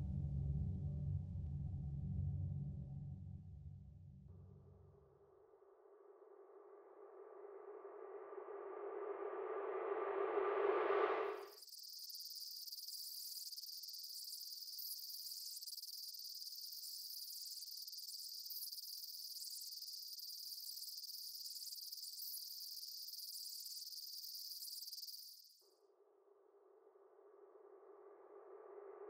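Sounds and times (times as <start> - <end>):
high-pitched insect chorus: 11.2 - 25.7.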